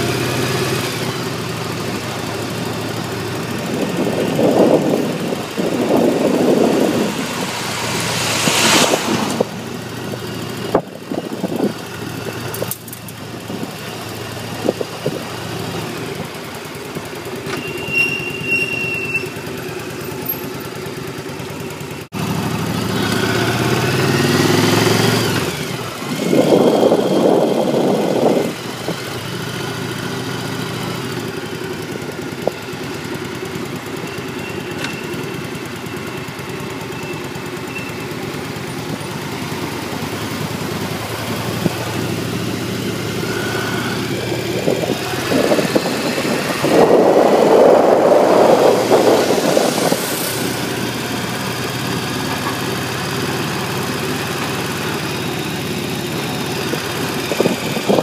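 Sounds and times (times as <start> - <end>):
motorcycle engine accelerating: 0.0 - 58.0
rushing noise: 4.0 - 11.7, 43.2 - 51.6.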